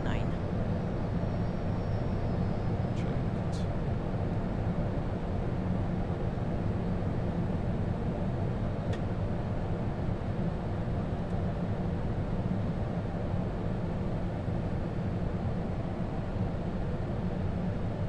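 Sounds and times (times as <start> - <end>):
airflow and engine noise in cockpit: 0.0 - 18.0.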